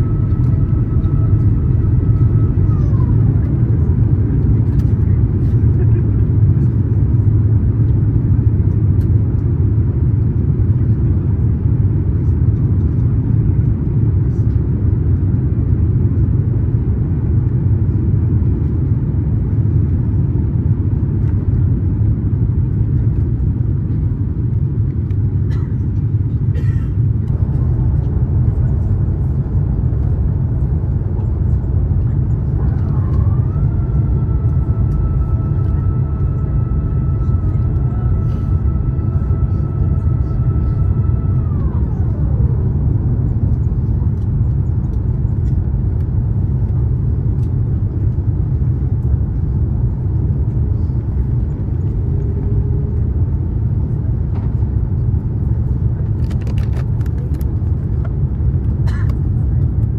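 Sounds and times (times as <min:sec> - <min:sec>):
steady tone: 0:00.0 - 0:02.7
low engine rumble in cabin: 0:00.0 - 0:59.9.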